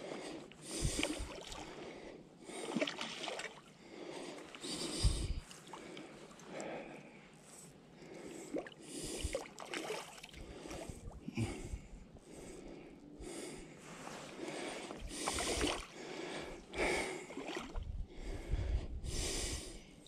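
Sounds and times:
person breathing close to microphone: 0.0 - 2.8, 3.8 - 9.5, 10.4 - 20.0.

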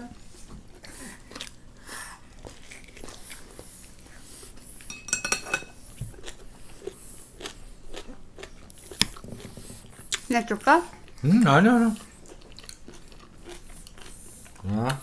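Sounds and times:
chewing and biting: 0.7 - 4.6, 5.9 - 11.3, 12.0 - 15.0
utensil clattering against dish: 4.9 - 5.7.

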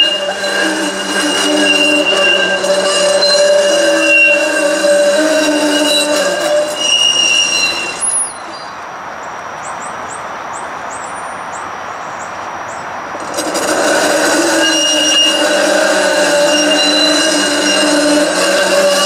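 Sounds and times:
streetcar wheels squealing: 0.0 - 8.9, 10.9 - 19.0.

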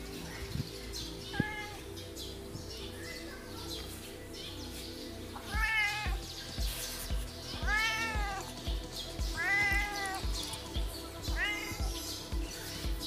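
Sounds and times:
cat meowing: 1.3 - 1.9, 5.4 - 6.2, 7.6 - 8.5, 9.4 - 10.2, 11.4 - 11.9.

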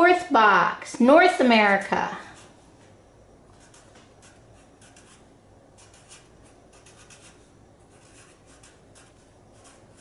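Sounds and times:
marker writing on paper: 3.5 - 10.0.

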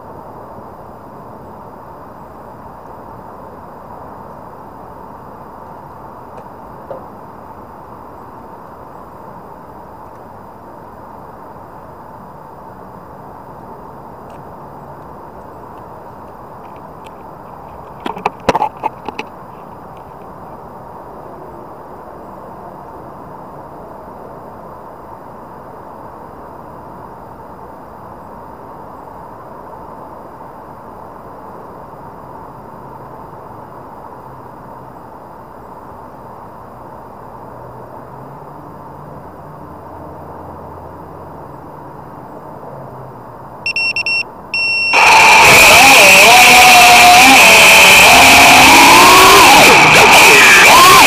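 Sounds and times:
steady background hiss: 0.0 - 51.0
short high electronic beeps: 43.7 - 45.0
drone motors starting: 43.7 - 51.0.

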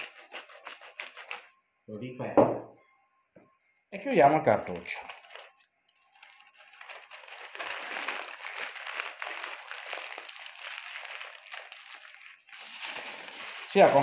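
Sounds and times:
parchment paper crinkling: 0.0 - 1.5, 4.5 - 14.0.

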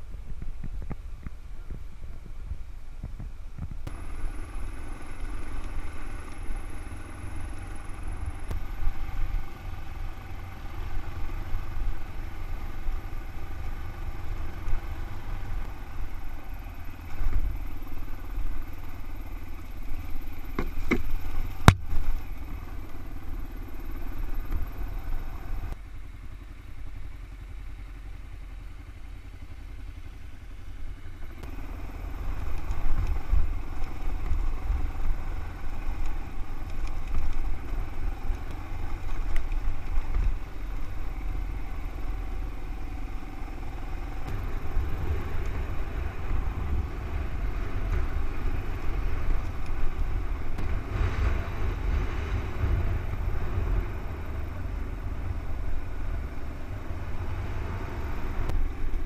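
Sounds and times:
wind rumble on microphone: 0.0 - 25.8, 31.3 - 59.0
motorcycle engine: 0.0 - 59.0.

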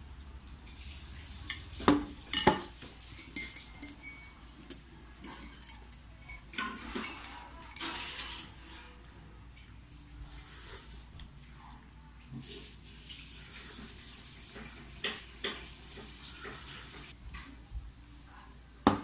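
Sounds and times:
spoon stirring in ceramic mug: 1.4 - 8.4.

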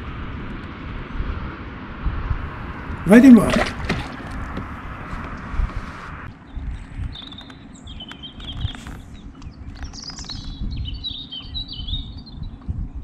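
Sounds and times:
songbird twittering: 7.1 - 12.5.

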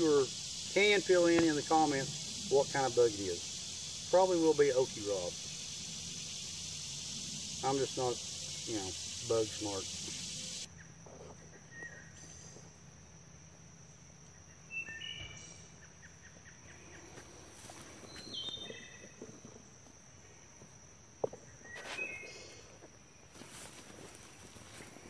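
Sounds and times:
high insect drone: 0.0 - 25.0
bird chirps: 14.7 - 17.0, 18.0 - 19.2
soft rustling: 23.3 - 25.0.

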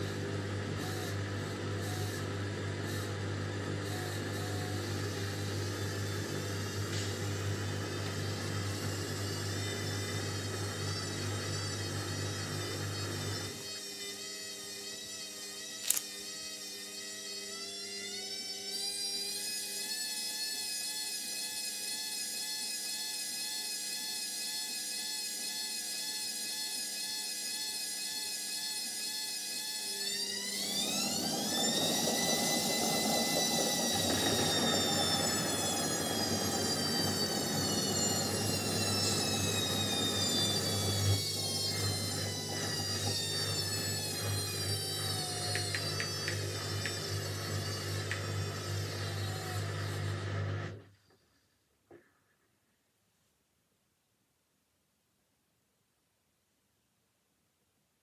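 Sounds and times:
washing machine motor whine: 0.0 - 14.9, 16.9 - 51.0.

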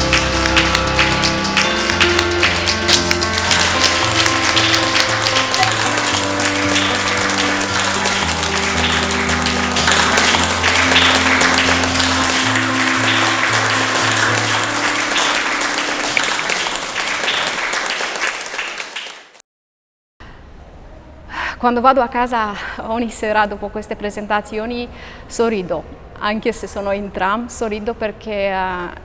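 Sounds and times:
background music with low notes: 0.0 - 17.1
audience applauding: 0.0 - 19.4.

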